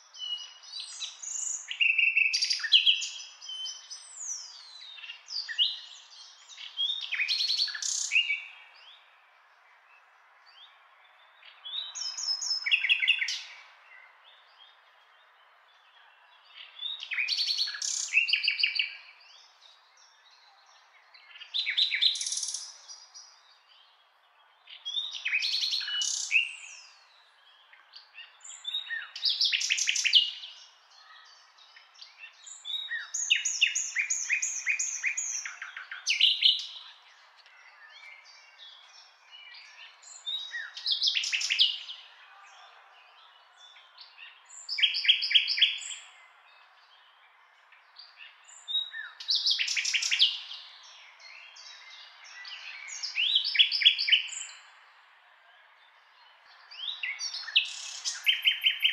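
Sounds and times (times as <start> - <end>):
nightingale singing: 0.0 - 54.8, 55.9 - 58.9.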